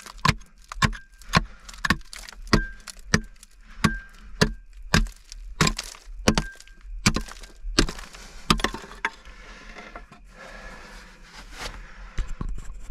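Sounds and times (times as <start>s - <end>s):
steel pick striking rock: 0.0s - 9.2s
rock scraping and rattling: 0.0s - 12.9s.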